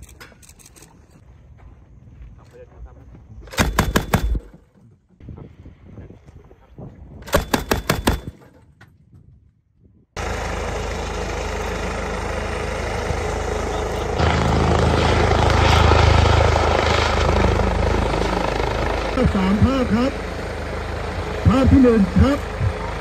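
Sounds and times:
helicopter noise: 0:02.7 - 0:04.6, 0:07.3 - 0:08.5, 0:10.2 - 0:23.0
machine gun bursts: 0:03.5 - 0:04.5, 0:07.3 - 0:08.4.

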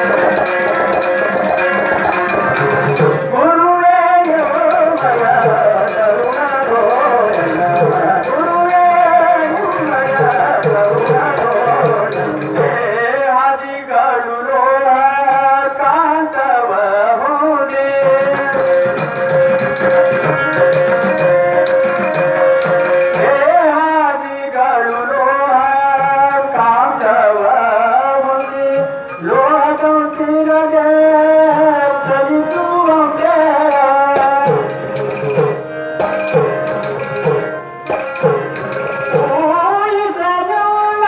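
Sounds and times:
hand drum: 0:00.0 - 0:03.5, 0:04.2 - 0:13.0, 0:17.0 - 0:23.5, 0:26.0 - 0:39.6
harmonium: 0:00.0 - 0:41.0
man singing: 0:00.0 - 0:41.0.

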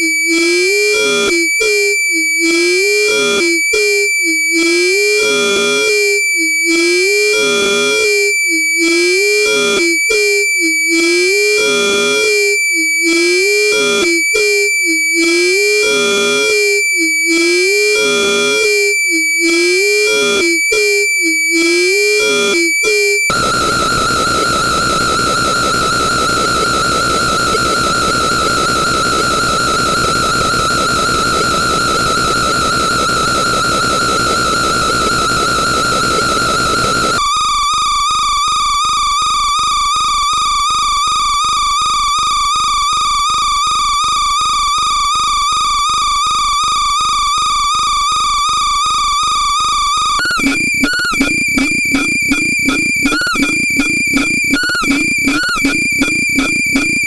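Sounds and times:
warbling whistling feedback tones: 0:49.9 - 0:57.0
rapid stuttering pulses: 0:50.2 - 0:57.0.

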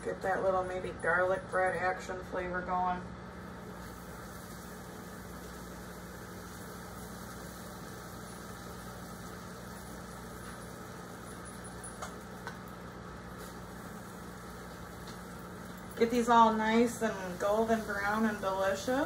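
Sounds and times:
microwave oven humming: 0:00.0 - 0:19.0.

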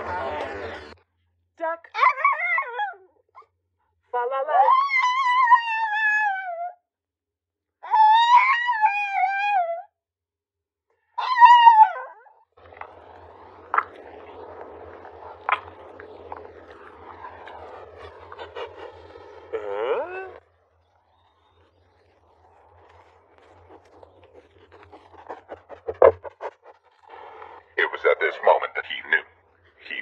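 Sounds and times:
small dog howling: 0:02.0 - 0:03.1, 0:04.5 - 0:06.8, 0:07.8 - 0:09.9, 0:11.2 - 0:12.3, 0:17.2 - 0:20.4
husky howling: 0:07.9 - 0:09.9, 0:11.2 - 0:20.5, 0:21.3 - 0:28.0.

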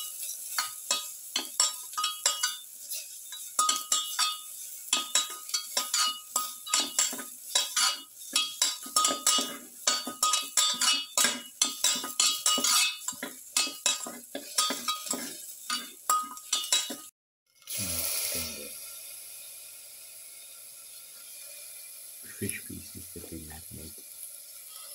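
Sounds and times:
metal spatula scraping a metal pan: 0:00.0 - 0:17.1
faint sizzle: 0:00.0 - 0:24.9.

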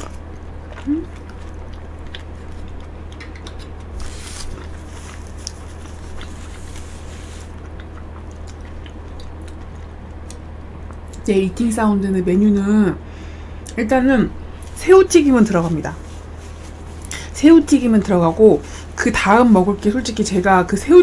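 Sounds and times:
close chewing and wet mouth sounds: 0:00.0 - 0:11.3
steady low hum: 0:00.0 - 0:21.0
tissue rustling: 0:04.0 - 0:07.6, 0:15.6 - 0:17.0.

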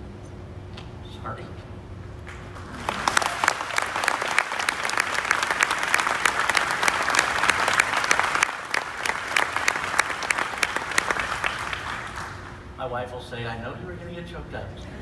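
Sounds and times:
audience applauding: 0:02.5 - 0:12.7.

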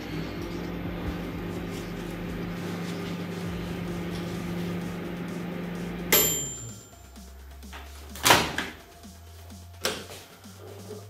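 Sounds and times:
microwave oven humming: 0:00.0 - 0:07.0
microwave timer bell ding: 0:06.1 - 0:07.2.

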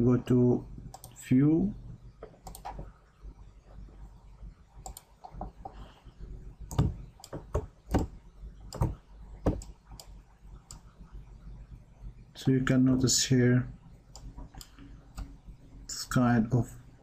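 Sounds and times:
computer mouse clicking: 0:00.9 - 0:01.2, 0:02.2 - 0:02.9, 0:04.8 - 0:05.8, 0:06.6 - 0:10.9, 0:14.1 - 0:15.4.

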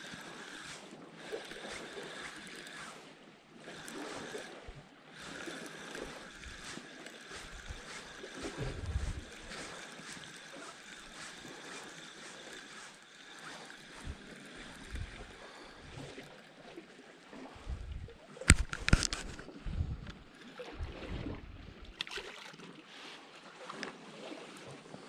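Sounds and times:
wind on microphone: 0:08.4 - 0:09.5, 0:14.8 - 0:16.0, 0:17.5 - 0:18.8, 0:19.5 - 0:21.9.

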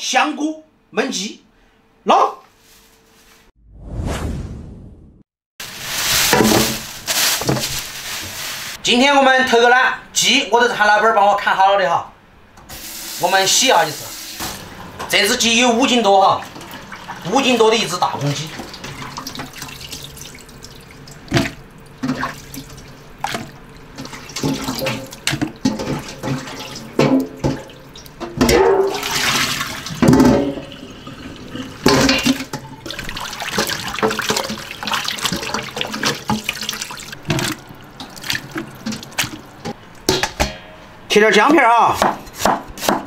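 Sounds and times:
knocks and clatter in sink: 0:06.2 - 0:07.8, 0:21.3 - 0:30.8, 0:31.8 - 0:40.6
tap water running and splashing: 0:12.6 - 0:14.8, 0:16.2 - 0:40.1.

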